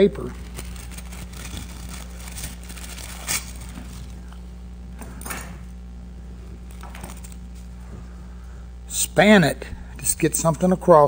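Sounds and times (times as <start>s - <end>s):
steady low hum: 0.0s - 11.0s
wax paper tearing and crinkling: 0.2s - 4.4s, 6.6s - 7.7s.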